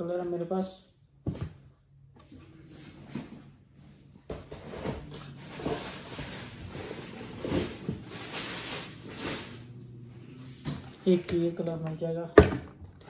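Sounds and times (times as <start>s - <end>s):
packaging and plastic being handled: 4.3s - 9.8s.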